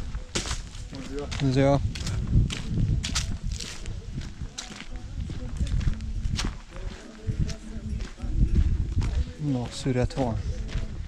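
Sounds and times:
footsteps walking: 0.0 - 11.0.

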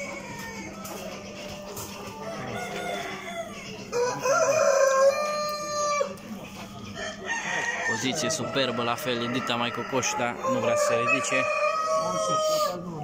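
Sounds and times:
chickens clucking: 0.0 - 13.0
rooster crowing: 2.2 - 6.2, 7.0 - 12.8.

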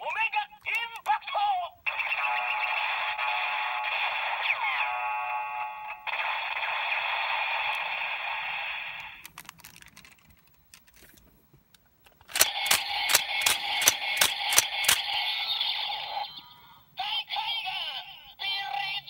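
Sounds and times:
toy electronic sound effects: 1.9 - 4.9, 12.2 - 19.0
handling clicks: 9.2 - 15.2.

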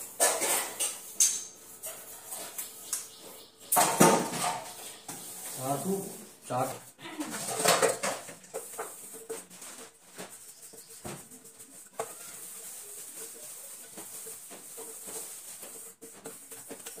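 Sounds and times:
crockery clinking: 0.2 - 1.6.

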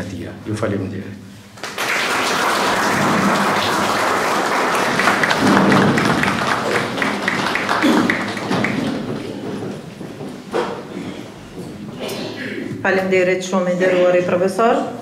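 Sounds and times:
audience applauding: 1.6 - 10.9.

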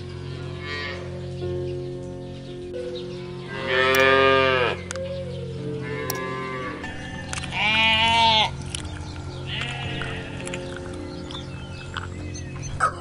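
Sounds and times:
cow mooing: 0.4 - 1.1, 3.5 - 4.9, 5.8 - 8.6, 9.5 - 11.0.

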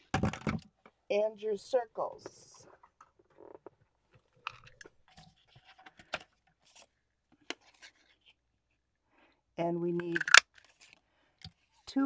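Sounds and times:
cardstock rustling and crinkling: 3.2 - 8.4.

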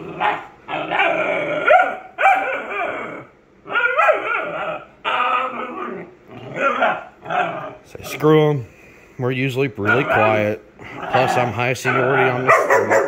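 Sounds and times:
dog yowling: 0.0 - 7.8, 11.1 - 13.0
dogs barking: 0.0 - 7.8, 9.8 - 13.0.

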